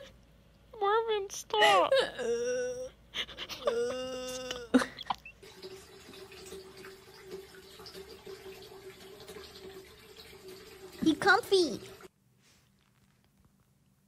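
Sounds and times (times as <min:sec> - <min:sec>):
faint steady hum: 0:00.0 - 0:14.0
water lapping and dripping: 0:04.5 - 0:12.1.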